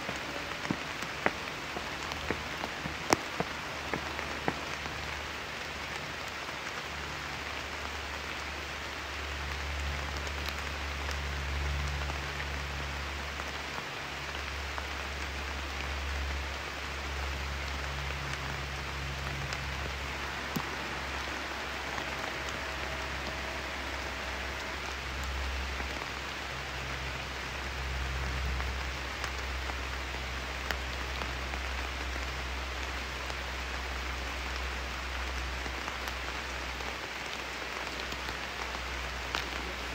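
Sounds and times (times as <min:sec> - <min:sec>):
steady rain falling: 0:00.0 - 0:39.9
low rumble: 0:15.8 - 0:35.4.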